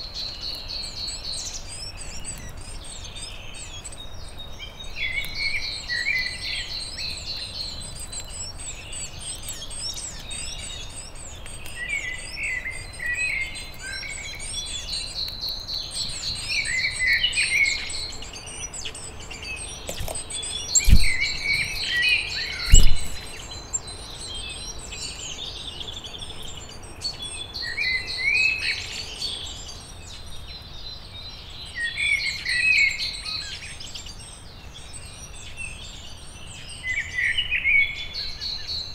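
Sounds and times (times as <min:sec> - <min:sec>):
songbirds singing: 0:00.0 - 0:38.9.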